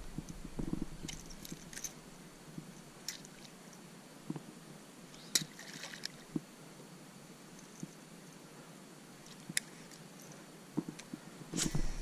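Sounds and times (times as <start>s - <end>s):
quiet water sounds: 0.0s - 12.0s
faint clicks and splashes: 5.2s - 6.4s.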